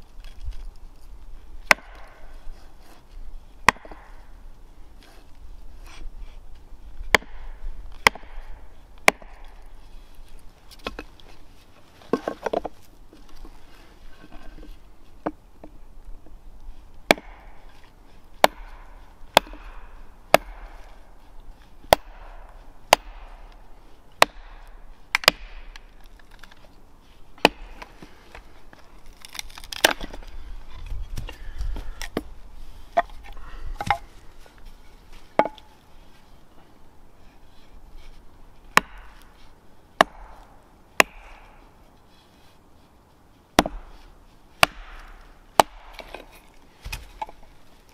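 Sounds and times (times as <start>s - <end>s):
hatchet chopping wood: 1.6s - 2.3s, 3.6s - 4.2s, 7.1s - 9.7s, 17.1s - 17.7s, 18.4s - 21.2s, 21.8s - 23.6s, 24.2s - 26.5s, 27.4s - 28.4s, 29.2s - 30.3s, 35.4s - 35.7s, 38.7s - 39.4s, 40.0s - 41.6s, 43.6s - 47.3s.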